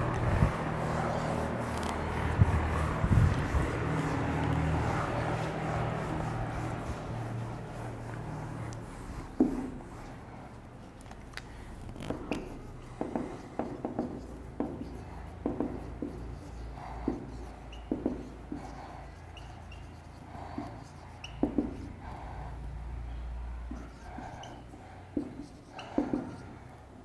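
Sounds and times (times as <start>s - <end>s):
marker writing on whiteboard: 0.0s - 27.0s
marker squeaks: 10.8s - 22.1s, 23.7s - 26.6s.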